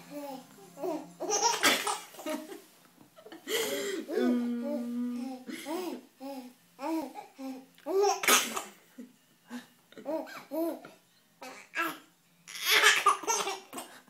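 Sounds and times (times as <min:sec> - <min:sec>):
baby laughing and babbling: 0:00.1 - 0:02.2.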